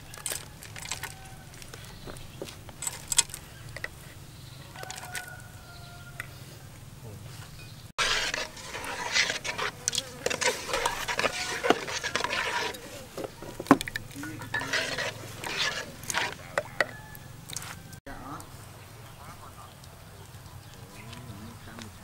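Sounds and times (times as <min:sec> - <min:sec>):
spoon stirring sauce in pot: 0:08.0 - 0:17.3
spoon clinking against pot: 0:13.7 - 0:17.0.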